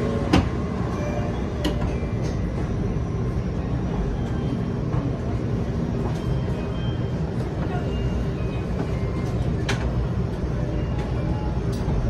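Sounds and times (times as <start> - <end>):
low rumble of train carriage: 0.0 - 12.0.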